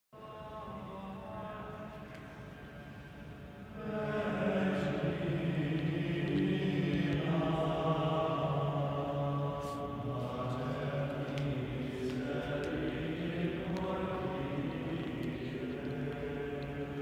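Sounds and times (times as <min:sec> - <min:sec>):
men's choir singing a cappella: 0:03.7 - 0:17.0.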